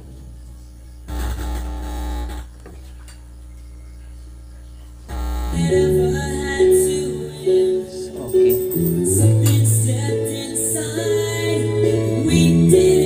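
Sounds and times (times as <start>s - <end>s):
mains hum: 0.0s - 13.0s
music through amplifier: 5.1s - 13.0s.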